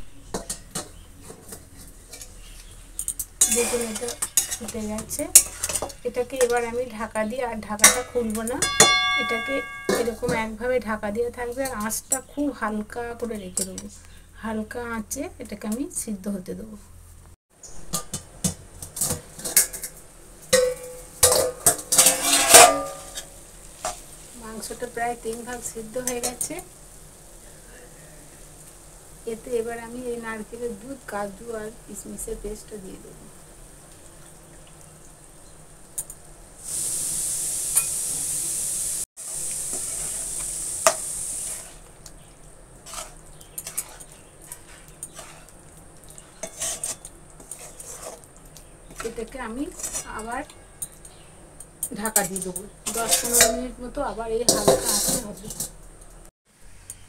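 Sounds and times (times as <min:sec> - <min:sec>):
metal spatula scraping pot: 0:00.2 - 0:06.9, 0:07.8 - 0:10.5, 0:20.6 - 0:24.0, 0:39.7 - 0:41.9, 0:42.8 - 0:51.2, 0:51.8 - 0:53.8, 0:54.4 - 0:55.8
paste sizzling in hot pan: 0:01.8 - 0:10.4, 0:17.7 - 0:51.6
steel bowl lid clinking: 0:07.8 - 0:10.4, 0:20.5 - 0:23.3, 0:51.8 - 0:53.7.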